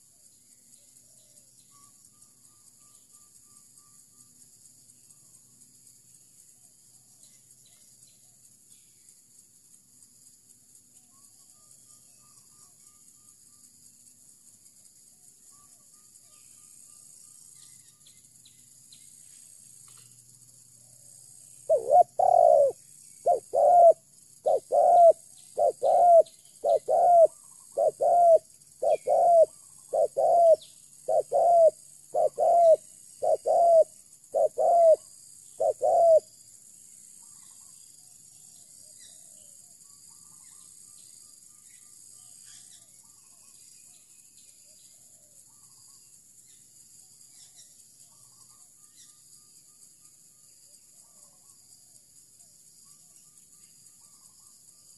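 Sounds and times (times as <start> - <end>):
dove cooing: 21.7 - 35.0, 35.6 - 36.3.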